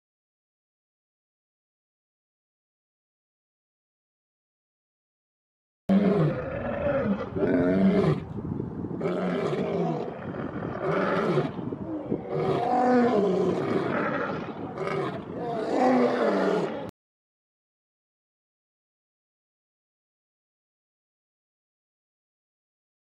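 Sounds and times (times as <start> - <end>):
male lion roaring: 5.9 - 8.3, 9.0 - 16.9.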